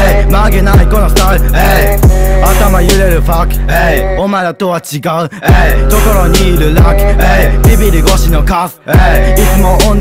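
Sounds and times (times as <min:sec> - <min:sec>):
rapping over deep bass: 0:00.0 - 0:10.0
booming kick drum: 0:02.0 - 0:02.4, 0:05.5 - 0:05.9.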